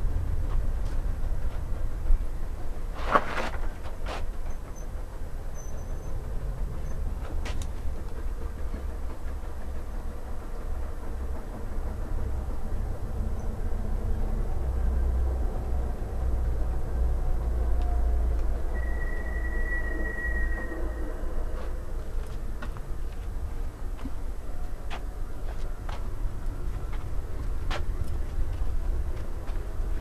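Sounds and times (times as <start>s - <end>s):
model train wheels rumbling on rail: 0.0s - 30.0s
thin high wheel squeal: 5.6s - 6.2s, 18.7s - 21.8s.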